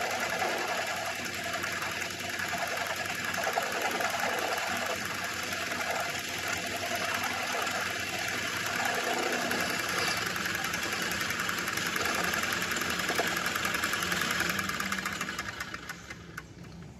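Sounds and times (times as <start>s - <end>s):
lathe whirring and rattling: 0.0s - 16.9s.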